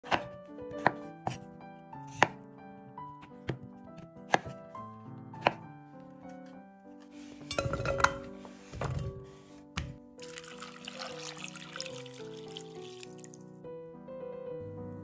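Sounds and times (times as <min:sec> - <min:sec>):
knife chopping on cutting board: 0:00.0 - 0:01.4, 0:02.1 - 0:02.4, 0:03.2 - 0:04.6, 0:05.4 - 0:05.7, 0:09.8 - 0:10.0
background music of held notes: 0:00.0 - 0:15.0.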